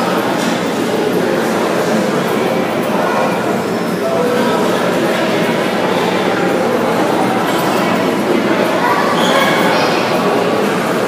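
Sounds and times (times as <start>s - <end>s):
crowd chatter: 0.0s - 11.0s.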